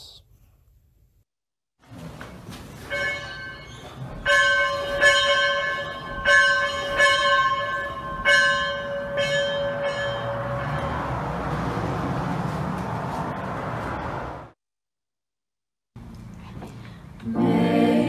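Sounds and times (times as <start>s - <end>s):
bell ringing: 2.9s - 11.2s.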